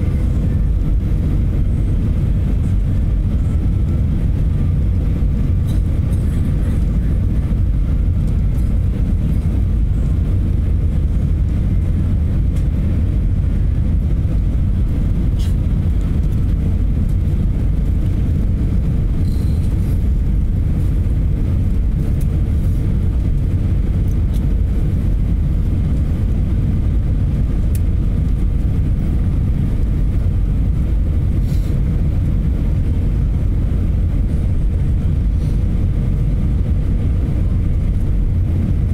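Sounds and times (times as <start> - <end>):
aircraft cabin engine rumble: 0.0 - 38.9.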